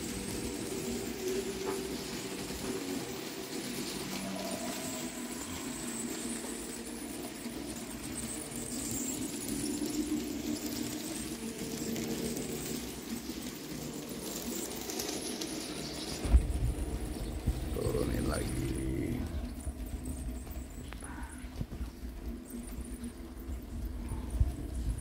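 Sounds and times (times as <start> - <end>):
model train motor whirring: 0.0 - 19.6
wheels running over rails: 0.0 - 25.0.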